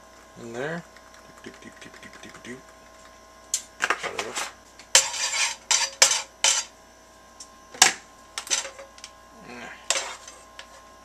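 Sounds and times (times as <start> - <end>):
metal kitchenware clattering: 5.0 - 6.7, 8.4 - 9.0, 9.9 - 10.4.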